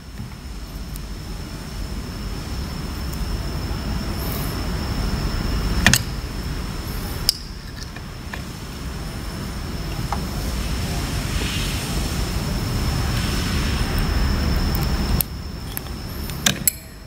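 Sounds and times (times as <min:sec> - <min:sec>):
high-pitched whine: 0:00.0 - 0:17.0
metal tool clicks: 0:14.7 - 0:17.0.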